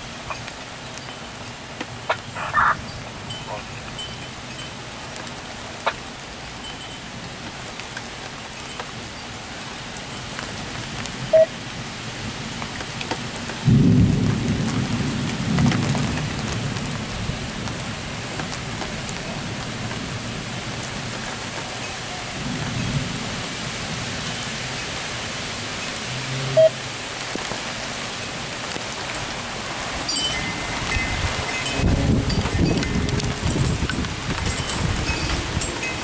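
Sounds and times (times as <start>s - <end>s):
heavy rain: 0.0s - 36.0s
rolling thunder: 13.6s - 20.4s, 30.8s - 36.0s.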